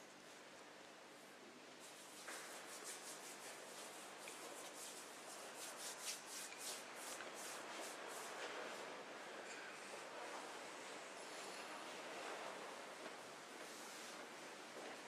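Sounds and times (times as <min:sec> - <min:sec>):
hands rubbing: 0:01.9 - 0:08.0.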